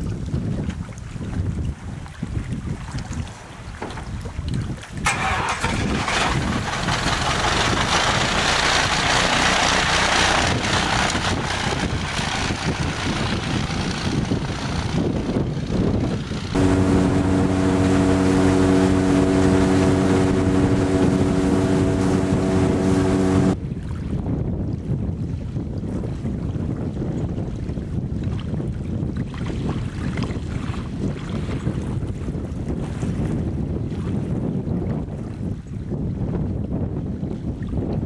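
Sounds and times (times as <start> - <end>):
wind noise on microphone: 0.0 - 38.0
plane engine running: 5.1 - 23.6
steady engine hum: 5.1 - 23.6
water spray: 16.6 - 23.6.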